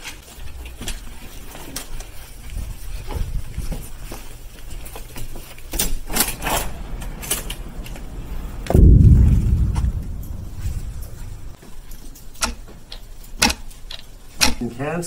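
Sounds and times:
footsteps: 6.3s - 11.8s
loud low rumble: 6.5s - 11.6s.

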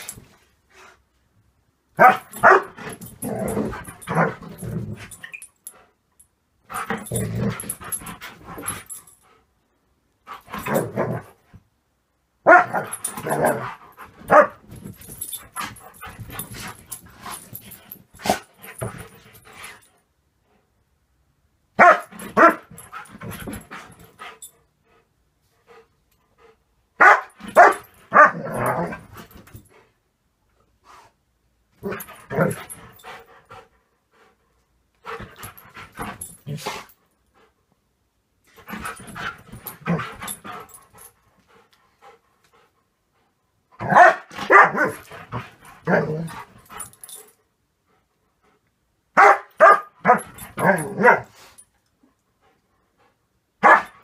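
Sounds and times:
dog barking and growling: 2.0s - 5.2s, 6.7s - 8.9s, 10.3s - 11.4s, 12.4s - 17.5s, 21.8s - 23.9s, 27.0s - 29.3s, 31.8s - 33.0s, 35.1s - 37.0s, 38.6s - 40.8s, 43.8s - 47.1s, 49.1s - 51.4s, 53.6s - 54.0s.

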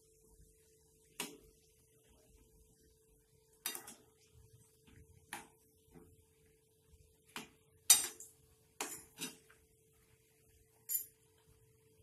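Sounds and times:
metal spoon clinking on pan: 7.9s - 9.4s.

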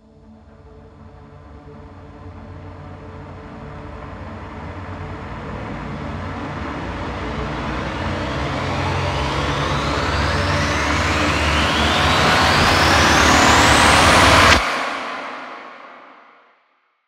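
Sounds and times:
low rumble: 1.2s - 14.6s
rising whoosh: 4.3s - 15.6s.

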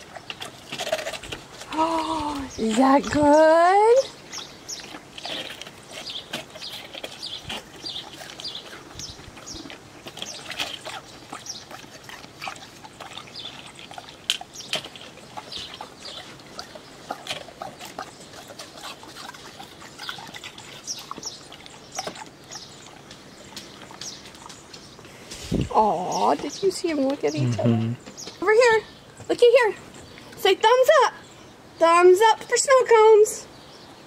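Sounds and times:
dogs licking and crunching ice: 0.0s - 25.2s.

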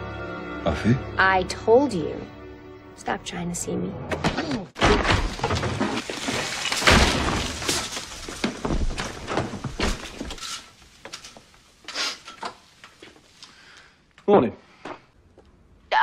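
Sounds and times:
crashes and knocks: 4.8s - 11.3s
something breaking: 4.8s - 11.4s.

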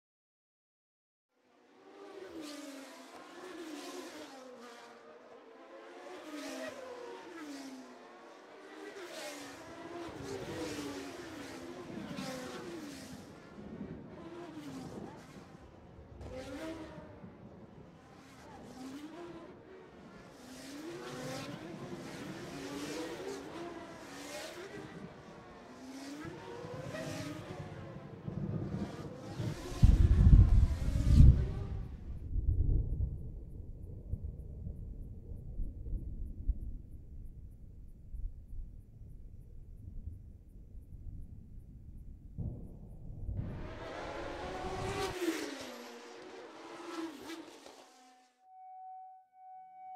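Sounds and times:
car engines revving: 1.6s - 32.0s, 43.4s - 48.4s
deep rumble: 29.6s - 45.0s.

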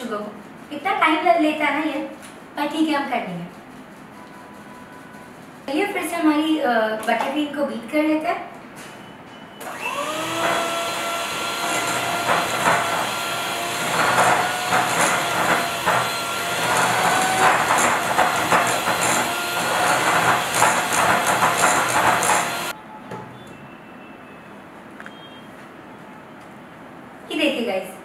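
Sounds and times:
electric hand mixer whine: 9.6s - 22.7s.

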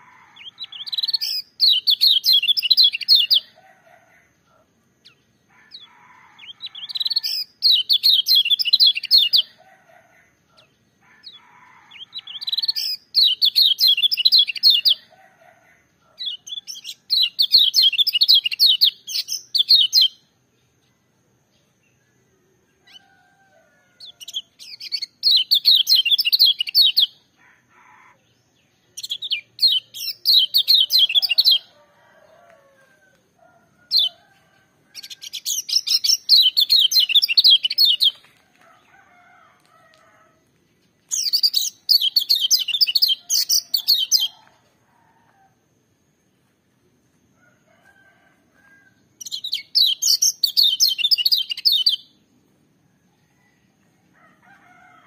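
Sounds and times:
bird singing shrill warbling song: 0.0s - 3.6s, 5.0s - 9.6s, 10.5s - 15.1s, 16.2s - 20.3s, 24.0s - 27.3s, 28.1s - 31.8s, 33.9s - 34.2s, 34.9s - 38.3s, 41.0s - 44.6s, 49.2s - 52.2s.

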